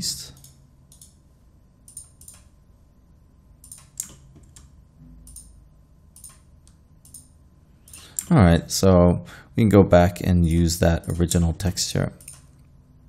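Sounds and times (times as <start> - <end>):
keyboard and mouse clicking: 0.4 - 1.2, 1.9 - 2.5, 3.6 - 5.6, 6.2 - 7.3, 12.2 - 12.5.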